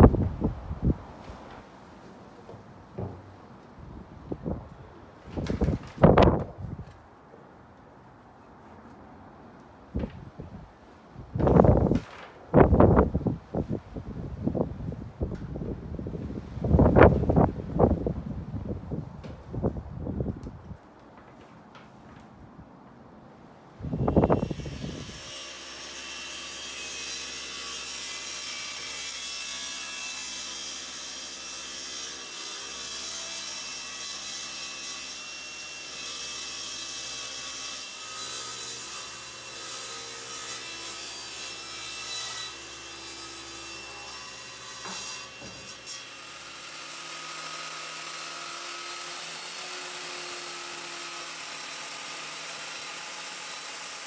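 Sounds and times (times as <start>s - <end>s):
circular saw cutting wood: 23.9s - 54.0s
table saw ripping a board: 24.0s - 54.0s.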